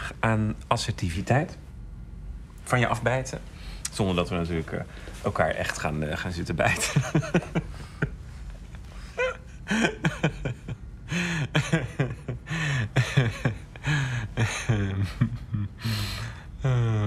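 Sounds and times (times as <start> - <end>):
men chuckling and laughing: 6.7 - 16.1
breathy exhale: 15.8 - 16.9.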